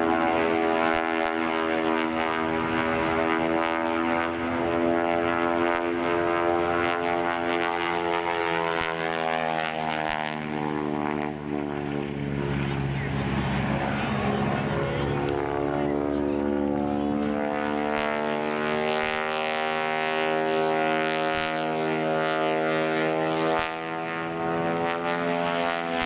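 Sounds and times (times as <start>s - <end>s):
propeller plane engine droning: 0.0s - 26.0s.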